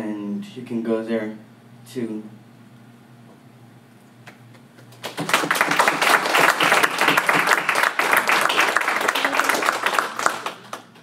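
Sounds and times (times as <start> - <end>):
small group applauding: 4.3 - 11.0.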